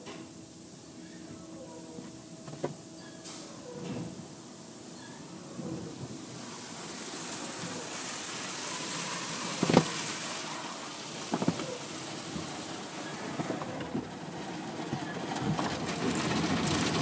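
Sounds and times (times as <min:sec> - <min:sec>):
water spray on windshield: 0:05.6 - 0:17.0.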